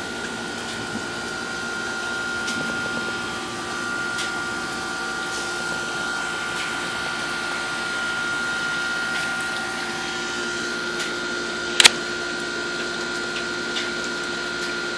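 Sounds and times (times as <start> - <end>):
mechanical hum: 0.0 - 14.9
sharp click: 11.8 - 12.0.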